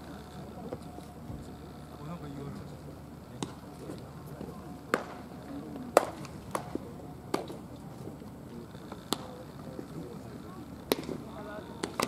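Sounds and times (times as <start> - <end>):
baseballs smacking into gloves: 4.9 - 7.6, 9.1 - 9.3, 10.9 - 11.2, 11.8 - 12.0.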